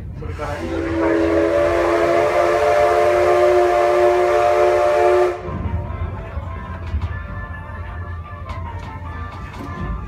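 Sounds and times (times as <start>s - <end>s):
train rumbling on track: 0.0s - 10.0s
steam locomotive whistle blast: 0.4s - 5.5s.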